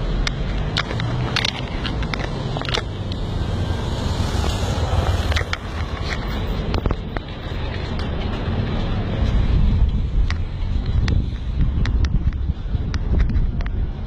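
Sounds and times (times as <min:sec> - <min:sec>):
steady low rumble: 0:00.0 - 0:14.0
sharp clicks and knocks: 0:00.2 - 0:03.4, 0:04.2 - 0:08.5.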